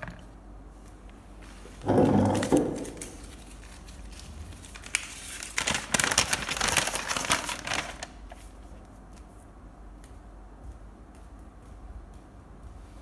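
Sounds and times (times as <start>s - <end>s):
paper crinkling and rustling: 1.5s - 9.5s.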